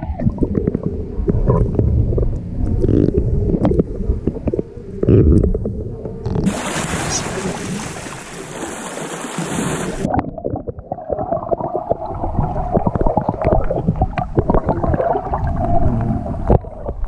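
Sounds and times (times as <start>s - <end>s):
underwater gurgling: 0.0s - 17.0s
underwater clicks and knocks: 0.1s - 6.5s, 12.7s - 15.0s, 15.8s - 17.0s
wind and sea hiss: 6.5s - 10.1s.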